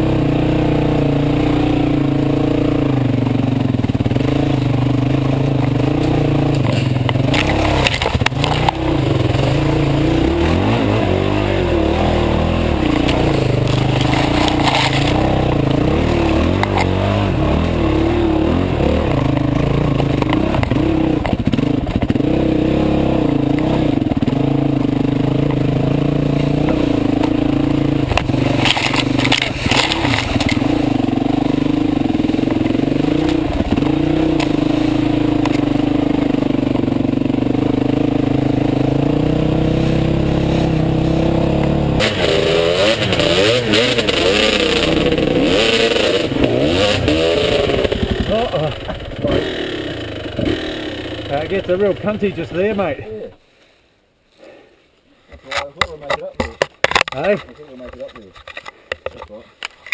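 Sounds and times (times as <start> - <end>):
dirt bike engine revving: 0.0 - 53.3
clatter: 1.9 - 10.7, 12.5 - 22.5, 23.2 - 38.8, 42.0 - 52.6.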